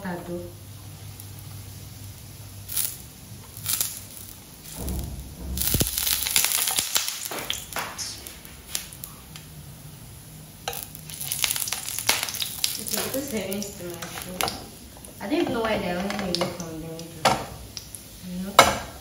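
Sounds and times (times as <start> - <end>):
sausages sizzling in oil: 0.0 - 4.8, 6.0 - 19.0
oil spitting and popping: 10.7 - 13.1.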